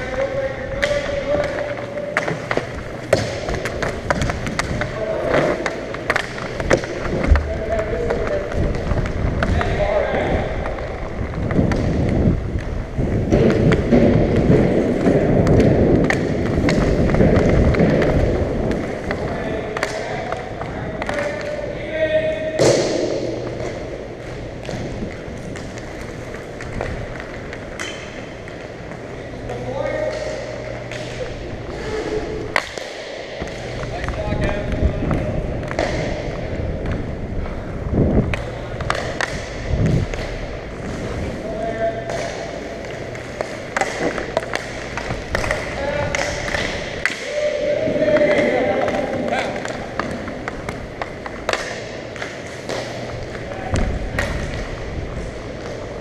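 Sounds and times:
sticks clicking on puck: 0:00.0 - 0:09.8, 0:31.9 - 0:37.0, 0:38.3 - 0:41.1, 0:42.0 - 0:47.4, 0:48.0 - 0:56.0
rumble of skating strides: 0:00.0 - 0:56.0.

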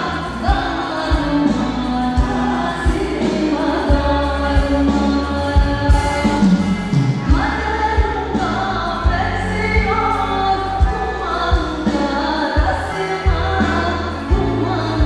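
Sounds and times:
bass: 0:00.0 - 0:15.0
woman singing into a microphone: 0:00.0 - 0:15.0.

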